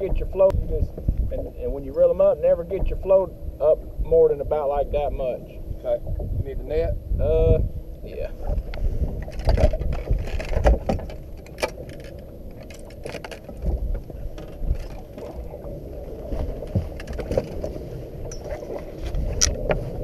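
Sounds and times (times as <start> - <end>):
wind and water rumble: 0.0 - 20.0
fishing reel and tackle clicking: 9.2 - 13.7.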